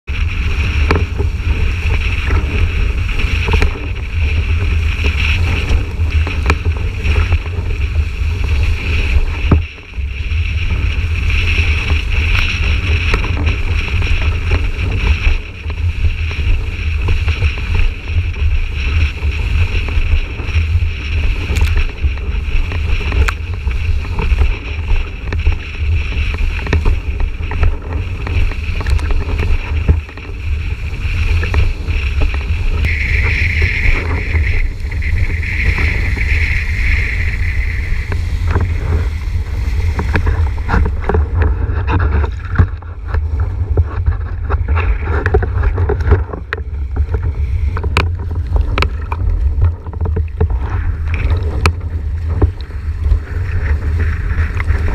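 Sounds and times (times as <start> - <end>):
water rushing and splashing: 0.0 - 54.9
wind buffeting microphone: 0.0 - 54.9.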